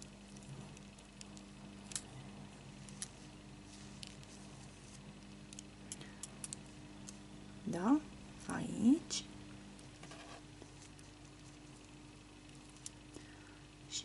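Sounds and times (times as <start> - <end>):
steady low hum: 0.0 - 14.0
soft handling clicks and rubs: 2.8 - 7.2, 9.7 - 13.0.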